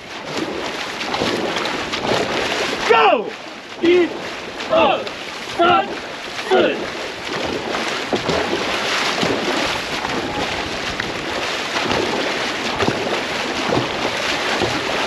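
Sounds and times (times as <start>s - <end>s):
paddles striking water: 0.0s - 15.0s
water rushing along hull: 0.0s - 15.0s
wind noise on microphone: 9.2s - 14.9s.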